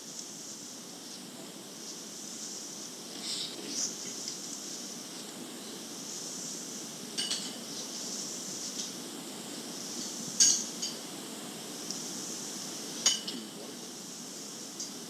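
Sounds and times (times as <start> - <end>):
cassette tape hiss and hum: 0.0 - 15.0
spoon clinking against dish: 7.2 - 7.6, 13.0 - 13.4.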